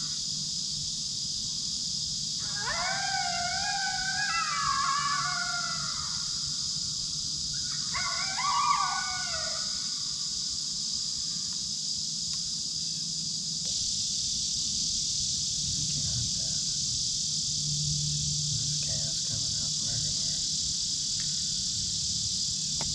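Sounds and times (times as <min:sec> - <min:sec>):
insects droning: 0:00.0 - 0:22.9
electronic predator call: 0:02.4 - 0:06.3, 0:07.8 - 0:09.9.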